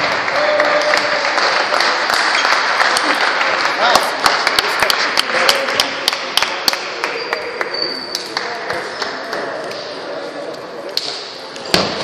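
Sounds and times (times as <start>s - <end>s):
murmur of voices: 0.0s - 12.0s.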